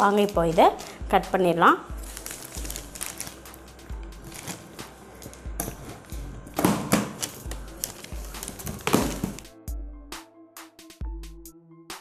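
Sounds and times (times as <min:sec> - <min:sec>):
plastic wrapping crinkling: 0:01.9 - 0:09.5
background music with beat: 0:02.0 - 0:12.0.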